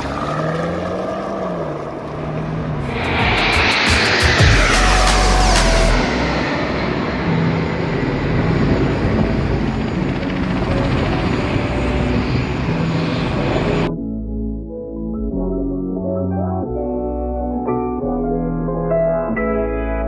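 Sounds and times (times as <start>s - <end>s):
jet roar overhead: 0.0s - 13.9s
soft music: 2.9s - 20.0s.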